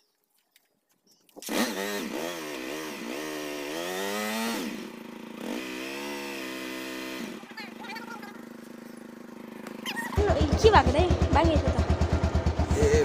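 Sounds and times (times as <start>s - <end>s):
motorcycle engine revving: 1.4s - 13.0s.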